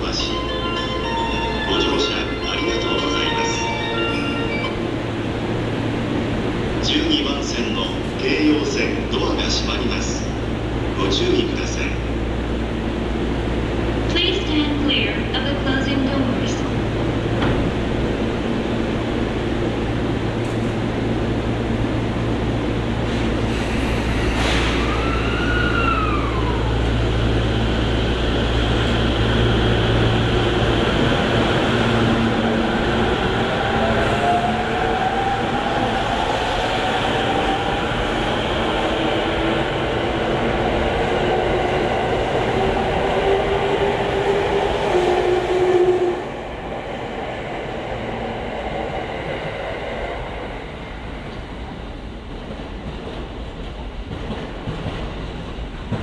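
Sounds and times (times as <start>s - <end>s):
electric train hum: 0.0s - 56.0s.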